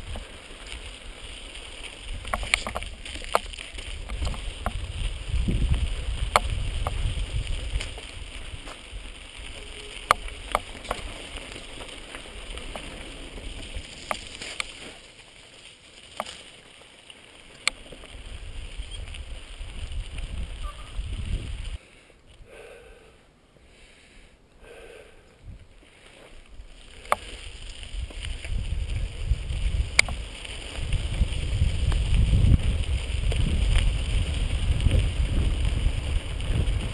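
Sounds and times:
wind rumble on microphone: 0.0s - 14.4s, 18.0s - 21.8s, 25.4s - 25.8s, 26.6s - 36.9s
bike knocking and rattling on rocks: 0.0s - 21.5s, 26.2s - 36.9s
bike tyre noise: 0.0s - 36.9s.

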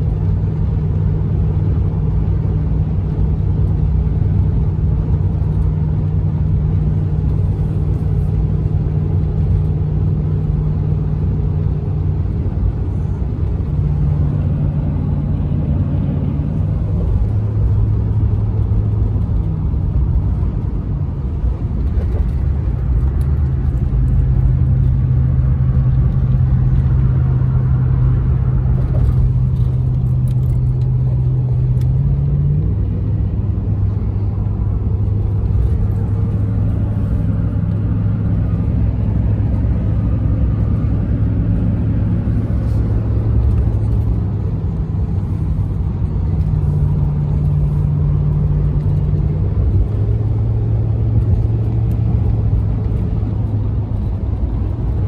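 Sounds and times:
car cabin road rumble: 0.0s - 55.0s
low engine hum: 0.0s - 55.0s.

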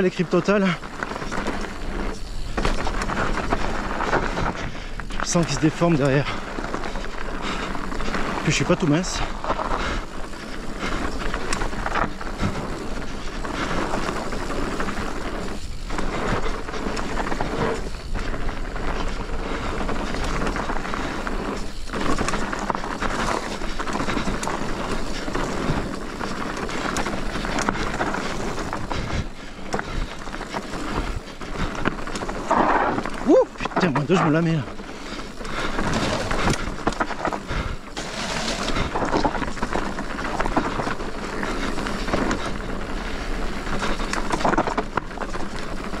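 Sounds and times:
bike tyres rolling over dirt: 0.0s - 46.0s.

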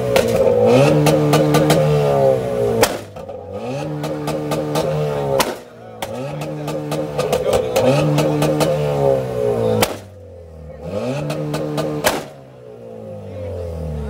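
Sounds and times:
exhaust crackles and pops: 0.0s - 2.0s, 2.7s - 8.9s, 9.8s - 10.2s, 11.2s - 12.4s
car engine revving: 0.0s - 14.0s
loud exhaust bangs: 0.0s - 14.0s.

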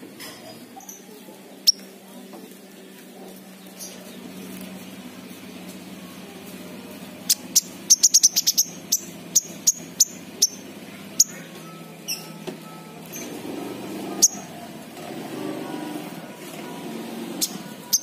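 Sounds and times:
bird chipping: 7.2s - 12.4s, 13.0s - 14.7s, 17.3s - 18.0s.

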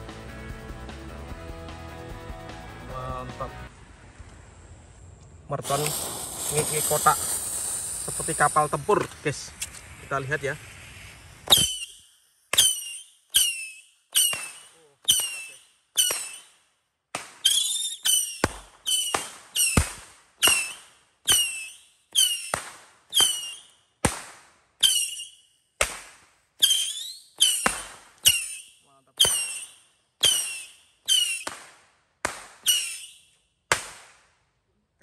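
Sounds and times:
firecracker cake firing shots: 5.6s - 10.2s, 11.4s - 34.4s.

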